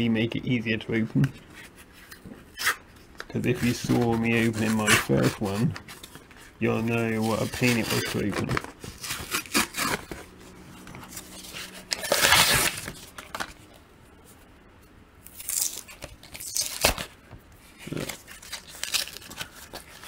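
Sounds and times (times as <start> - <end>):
plastic blister pack crackling: 2.6 - 10.4, 15.3 - 17.2, 17.8 - 20.0.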